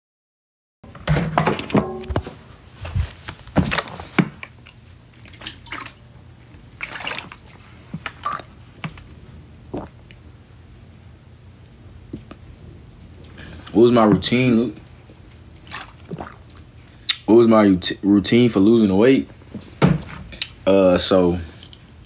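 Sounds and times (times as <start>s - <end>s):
liquid sounds: 3.7s - 10.2s, 15.5s - 17.2s.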